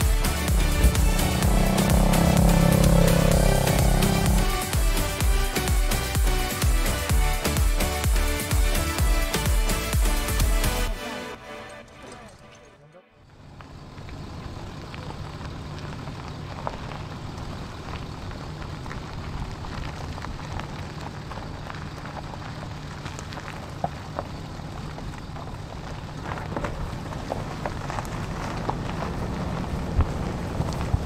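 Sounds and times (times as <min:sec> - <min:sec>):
low steady rumble: 0:00.0 - 0:05.6, 0:13.3 - 0:31.0
raindrop ticks: 0:13.6 - 0:31.0.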